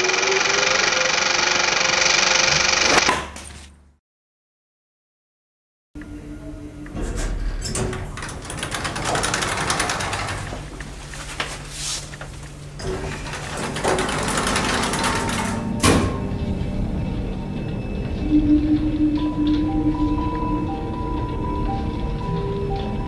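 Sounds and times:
elevator mechanical hum: 0:00.0 - 0:03.0, 0:06.0 - 0:23.0
paper-like rustling: 0:09.4 - 0:12.7.

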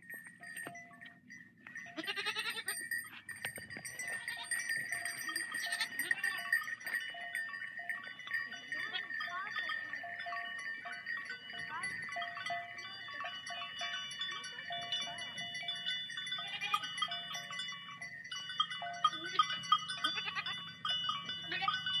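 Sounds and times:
sheep bleating: 0:02.0 - 0:02.7, 0:20.0 - 0:20.6.

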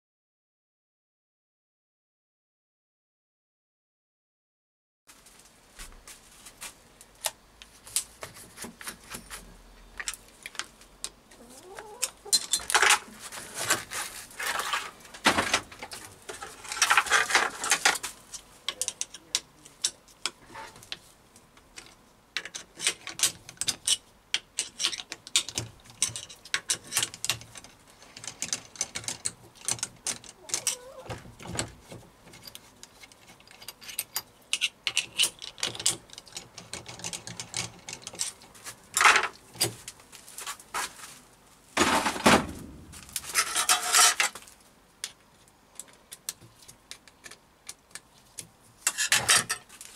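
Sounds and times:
steel parts clicking and clinking: 0:12.0 - 0:13.8, 0:15.8 - 0:20.4, 0:21.7 - 0:30.9, 0:32.3 - 0:38.4, 0:43.0 - 0:44.4, 0:45.8 - 0:49.9
metal parts rattling: 0:24.6 - 0:30.8, 0:32.3 - 0:38.4, 0:43.0 - 0:44.4, 0:48.8 - 0:49.7.

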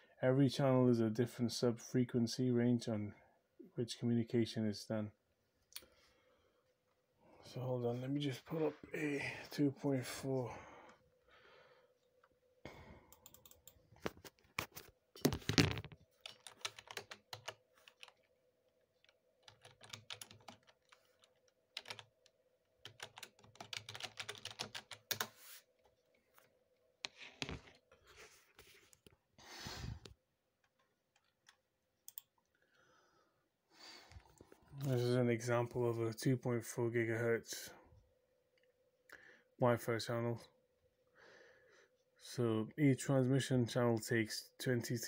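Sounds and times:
faint steady hum: 0:00.0 - 0:15.2, 0:16.0 - 0:45.0
typing on computer keyboard: 0:13.2 - 0:14.1, 0:15.3 - 0:18.3, 0:19.0 - 0:25.3.

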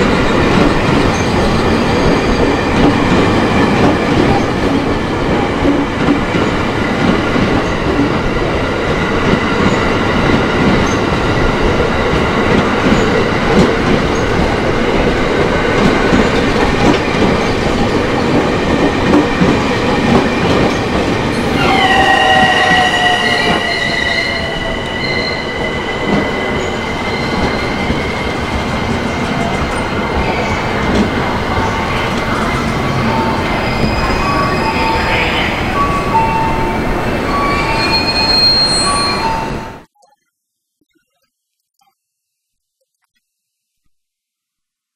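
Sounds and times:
train wheels rumbling on track: 0:00.0 - 0:39.6
high wheel squeal: 0:21.4 - 0:27.8, 0:37.3 - 0:39.5.

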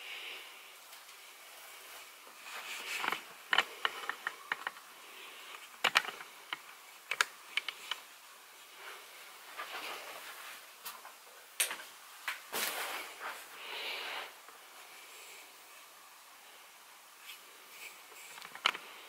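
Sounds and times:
fabric rustling: 0:01.6 - 0:03.8
sharp clicks and crackles: 0:02.8 - 0:04.9, 0:05.5 - 0:08.1, 0:18.2 - 0:18.9.

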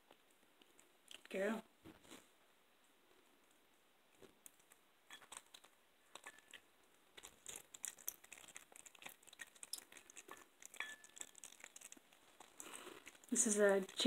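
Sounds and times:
cat crunching on bone: 0:04.1 - 0:14.0.

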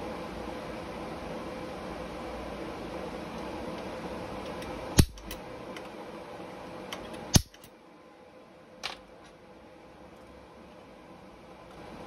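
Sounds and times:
steady shop hum: 0:00.0 - 0:12.0
welder snaps: 0:04.6 - 0:05.4, 0:07.3 - 0:07.7.

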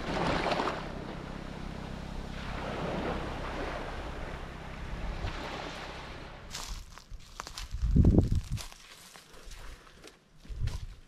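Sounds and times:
small waves washing onto beach: 0:00.0 - 0:06.8
wind rumbling on microphone: 0:00.0 - 0:08.8.

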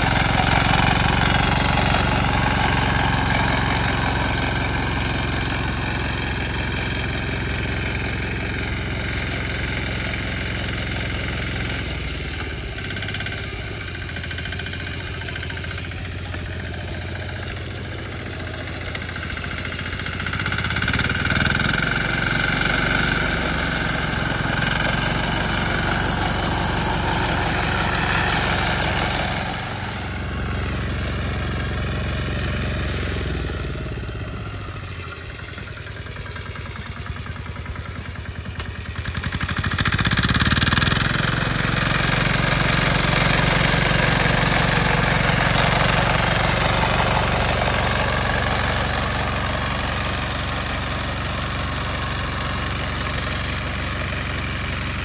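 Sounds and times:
engine running: 0:00.0 - 0:55.0.

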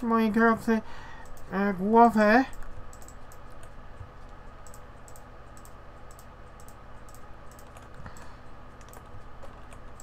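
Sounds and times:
low electrical hum: 0:00.0 - 0:10.0
keyboard and mouse clicks: 0:02.5 - 0:10.0.

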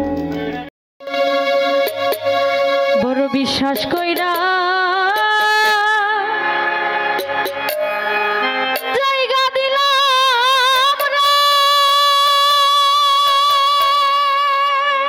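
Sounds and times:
held accompaniment chord: 0:01.0 - 0:05.1
woman singing into a microphone: 0:03.0 - 0:06.6, 0:08.8 - 0:15.0.

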